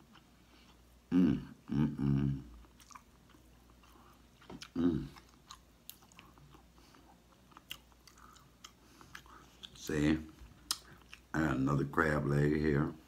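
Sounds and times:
person chewing food: 0.0 - 1.1, 2.4 - 11.4
man humming: 1.1 - 2.6, 4.7 - 5.2.

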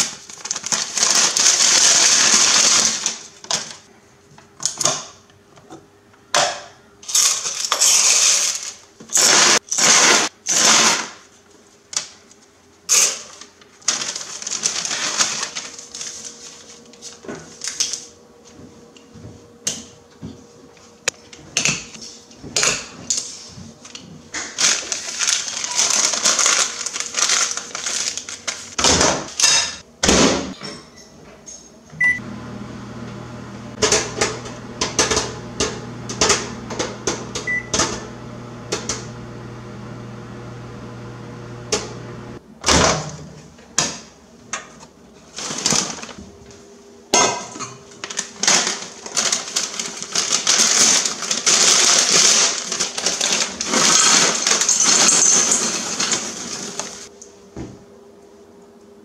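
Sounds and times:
paper bag crinkling: 0.0 - 3.8, 13.3 - 17.8, 24.5 - 28.8, 48.0 - 57.1.

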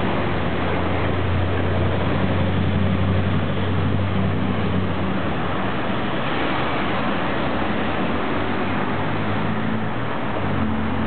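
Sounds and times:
cars passing: 0.0 - 11.0
low engine hum: 0.0 - 11.0.

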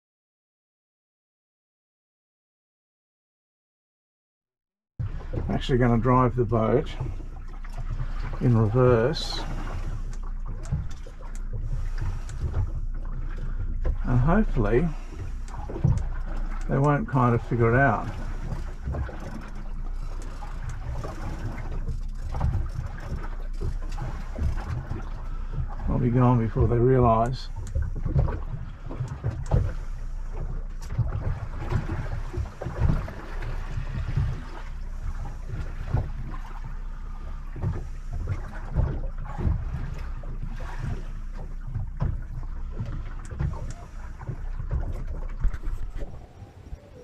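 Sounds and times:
boat motor rumbling: 5.0 - 47.0
hull slapping over waves: 5.0 - 47.0
water splashing: 5.0 - 47.0
wind buffeting microphone: 41.8 - 47.0.

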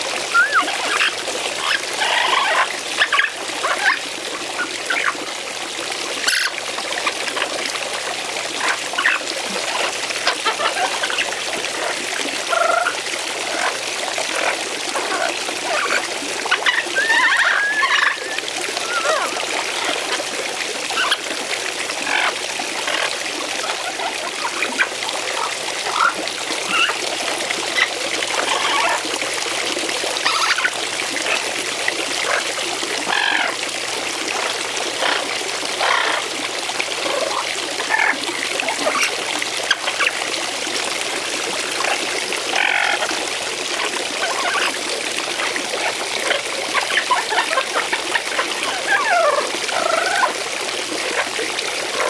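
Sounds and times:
fountain water splashing: 0.0 - 52.0
parrot chirping: 0.3 - 1.0.

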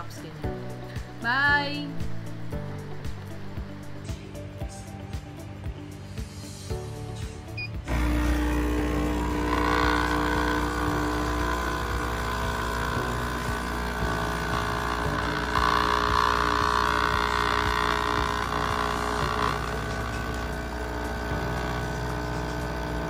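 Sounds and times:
coffee machine pump humming: 7.6 - 23.0.

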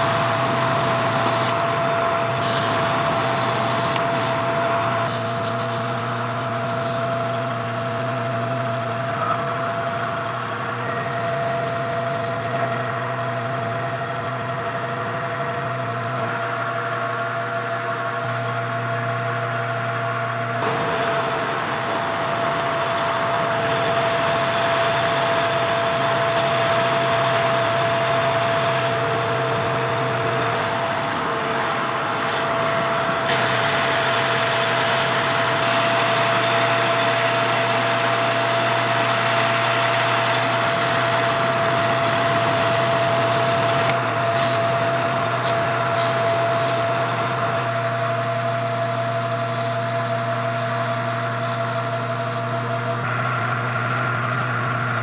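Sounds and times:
hiss of metal cutting: 0.0 - 8.6, 11.0 - 12.6, 28.5 - 37.1, 44.2 - 47.0, 47.6 - 52.5
metal lathe motor whine: 0.0 - 55.0.

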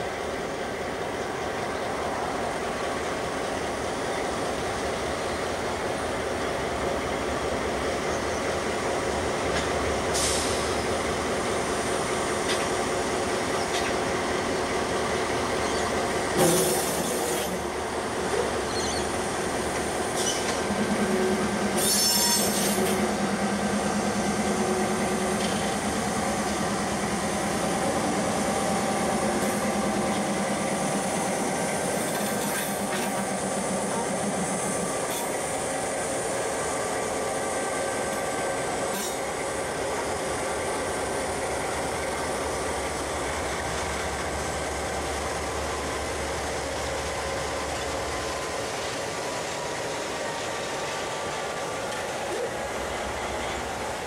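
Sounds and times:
locomotive engines droning: 0.0 - 54.0
high wheel squeal: 18.6 - 19.2, 20.2 - 20.6, 21.8 - 22.8.

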